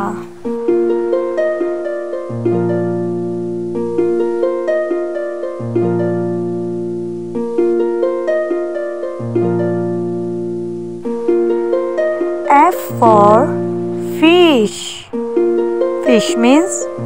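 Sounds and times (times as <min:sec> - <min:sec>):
plucked notes music: 0:00.0 - 0:17.0
low bass note: 0:12.5 - 0:17.0.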